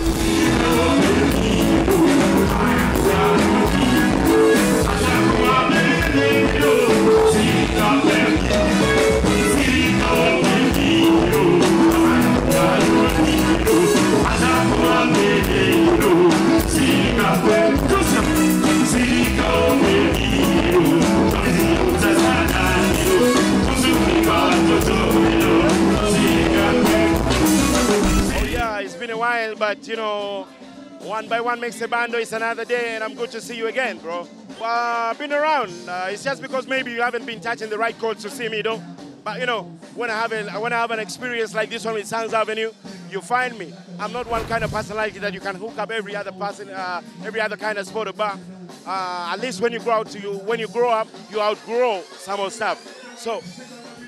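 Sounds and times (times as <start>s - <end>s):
man singing into a microphone: 0.0s - 27.4s
live band music: 0.0s - 28.8s, 43.6s - 48.1s
steady drum beat: 0.0s - 28.8s, 44.0s - 45.8s.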